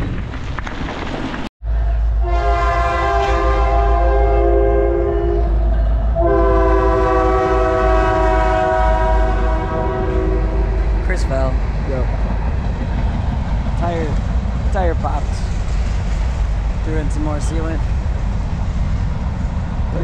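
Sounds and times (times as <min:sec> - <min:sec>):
train horn blasts: 0:02.2 - 0:11.0
low rumble: 0:03.4 - 0:20.0.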